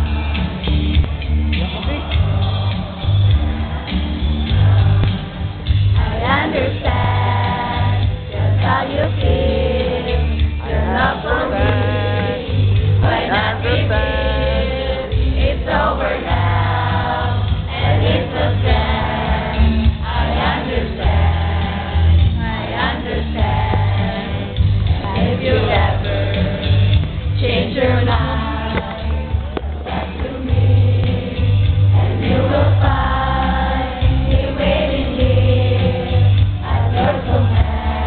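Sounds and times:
pulsing bass line: 0.0s - 38.0s
song with sung vocals: 0.0s - 38.0s.

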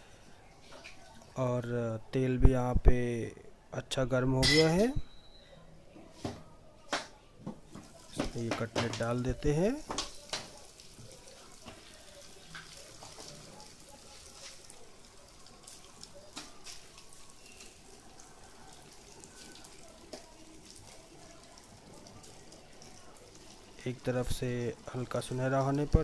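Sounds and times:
cutlets deep-frying in oil: 7.5s - 26.0s.

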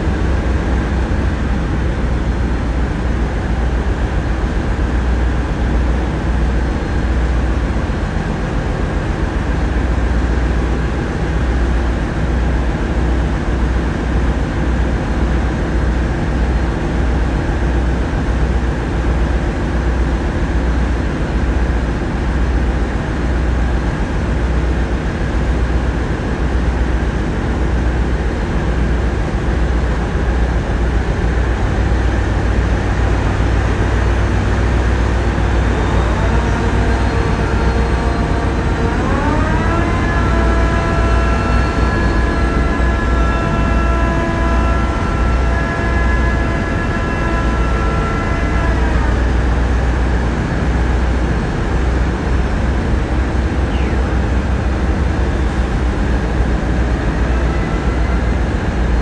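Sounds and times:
boat diesel engines throbbing: 0.0s - 59.0s.

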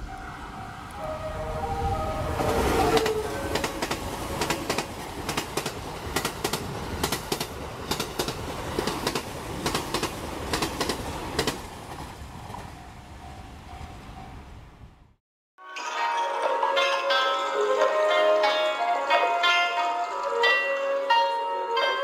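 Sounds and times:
train rumbling past: 0.0s - 15.2s
train wheels clacking on rail joints: 2.4s - 14.4s.

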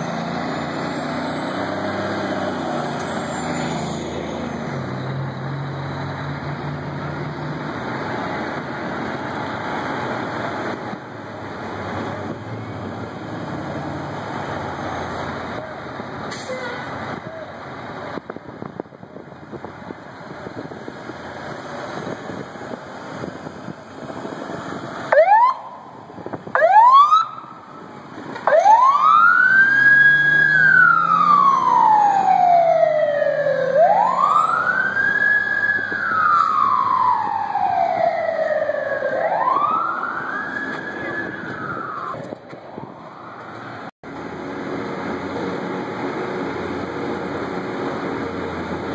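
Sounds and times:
fire engine running: 0.0s - 48.9s
siren whoops: 25.1s - 27.7s, 28.4s - 42.2s
siren wailing: 25.1s - 27.8s, 28.4s - 42.2s.

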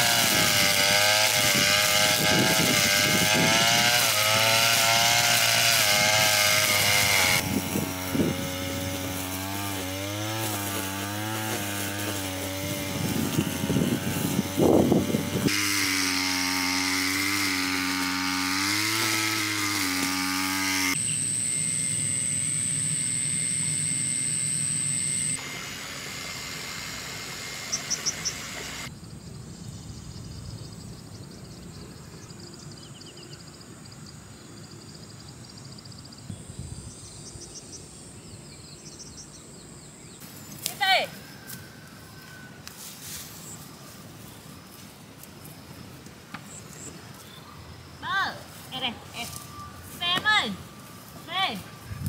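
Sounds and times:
string trimmer engine: 0.0s - 28.9s
outdoor ambience: 0.0s - 52.0s
steady high whine: 20.0s - 28.9s
bird chirps: 27.7s - 28.5s.

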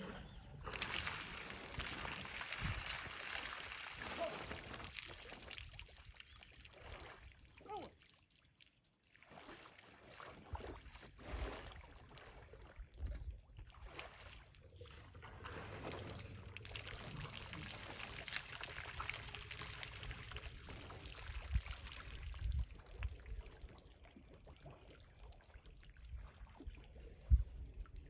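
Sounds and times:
water pouring and trickling: 0.0s - 28.0s.

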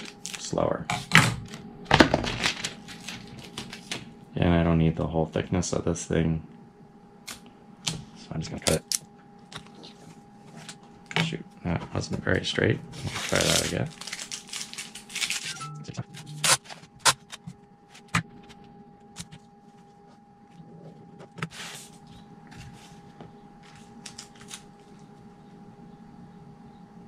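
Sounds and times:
faint steady hum: 0.0s - 27.0s
packing tape peeling: 13.0s - 15.6s, 16.2s - 18.1s.

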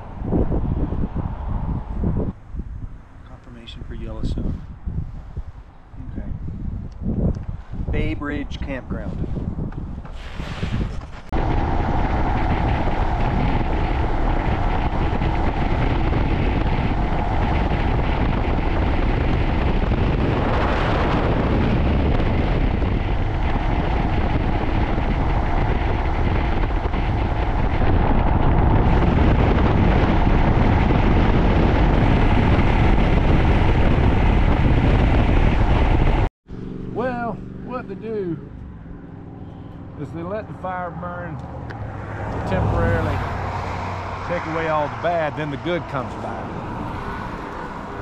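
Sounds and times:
wind on microphone: 0.0s - 48.0s
motorcycle engine: 11.3s - 40.6s.

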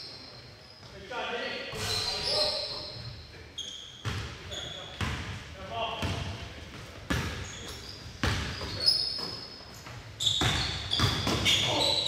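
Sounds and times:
basketball bouncing on gym floor: 6.0s - 7.5s, 8.2s - 9.4s, 10.2s - 11.7s.

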